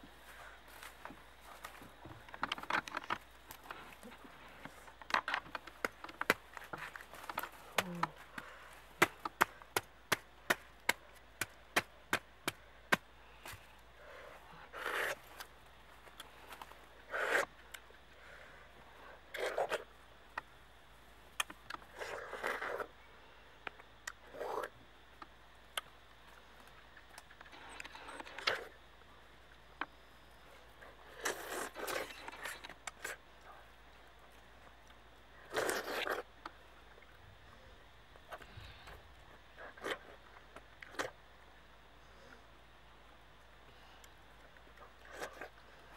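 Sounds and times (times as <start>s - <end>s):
knife chopping fruit husk: 9.0s - 13.0s
fruit being bitten into: 35.5s - 36.3s.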